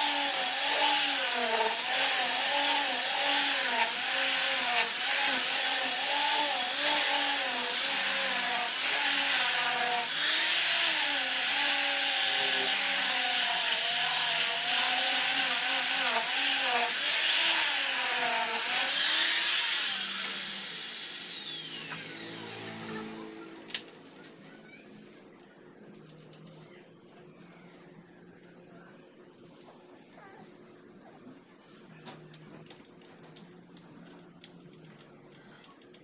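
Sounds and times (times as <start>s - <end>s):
electric sander motor whine: 0.0s - 23.7s.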